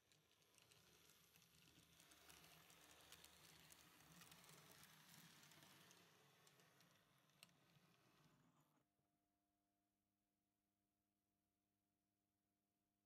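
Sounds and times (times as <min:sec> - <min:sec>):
model train whirring and clicking: 0:00.0 - 0:08.7.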